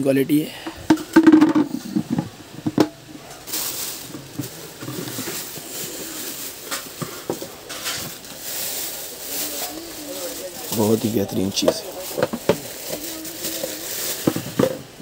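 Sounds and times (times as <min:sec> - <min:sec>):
sharp knocks on plastic pot: 0:00.9 - 0:03.0
plastic wrapping rustling: 0:00.9 - 0:15.0.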